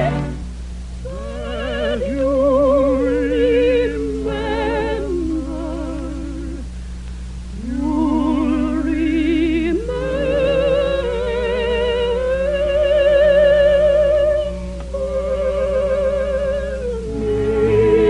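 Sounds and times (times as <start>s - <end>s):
operatic soprano singing: 0.0s - 0.4s, 1.0s - 6.7s, 7.5s - 18.0s
steady low hum: 0.0s - 18.0s
lower vocal line: 1.0s - 6.7s, 7.5s - 18.0s
singer breathing: 6.7s - 7.4s.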